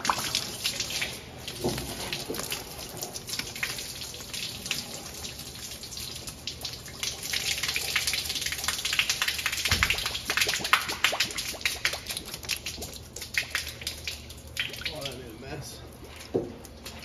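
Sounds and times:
water spray spattering on metal: 7.1 - 14.0.

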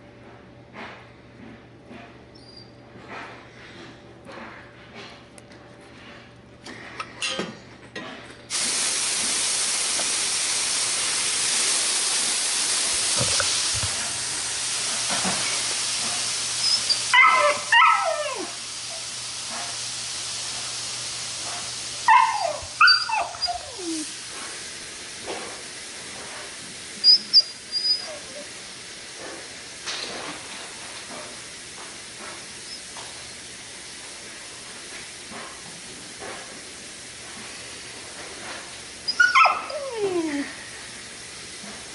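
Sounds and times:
steam hissing: 8.5 - 41.9
dog yelping and whimpering: 16.6 - 18.6, 22.1 - 24.1, 27.1 - 28.5, 39.1 - 40.6.

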